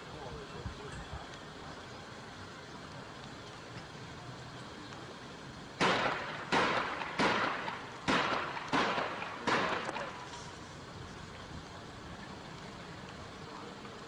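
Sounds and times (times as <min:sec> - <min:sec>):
gunshots with echo: 0:05.8 - 0:10.2.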